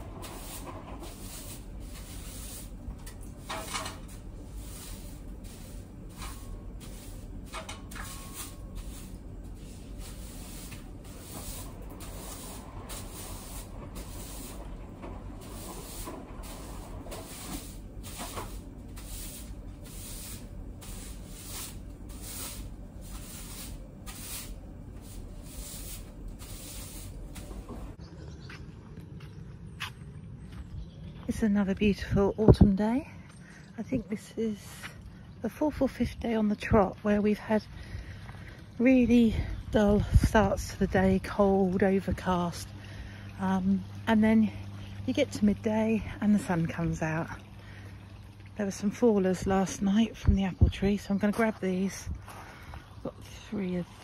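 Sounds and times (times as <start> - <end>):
string mop swishing on floor: 0.0 - 14.7, 15.4 - 28.0.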